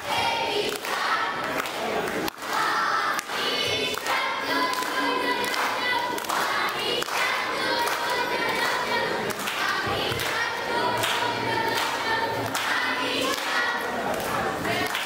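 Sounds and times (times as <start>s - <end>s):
children singing in unison: 0.0s - 1.8s, 2.4s - 15.0s.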